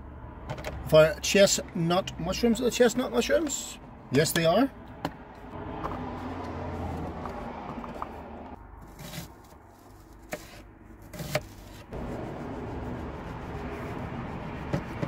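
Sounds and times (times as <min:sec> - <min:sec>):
knife slicing and scraping: 0:07.9 - 0:12.5.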